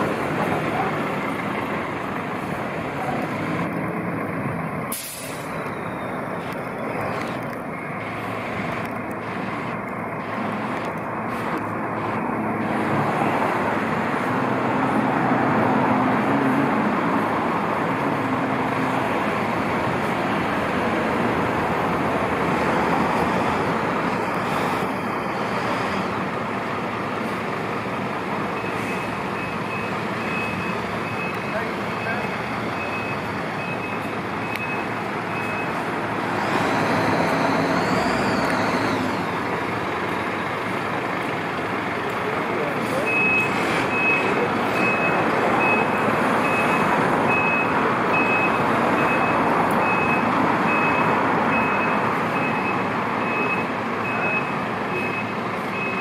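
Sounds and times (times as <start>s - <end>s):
fire engine diesel engine: 0.0s - 56.0s
reversing beeper: 5.1s - 8.3s, 28.6s - 35.8s, 42.9s - 56.0s.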